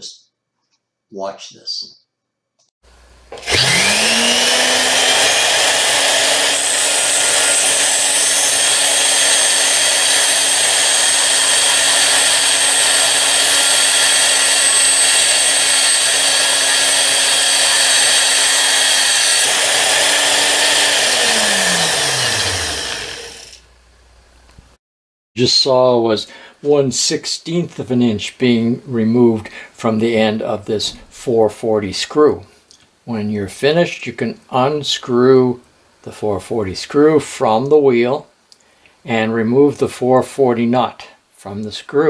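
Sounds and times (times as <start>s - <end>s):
grinder motor hum: 3.3s - 23.7s.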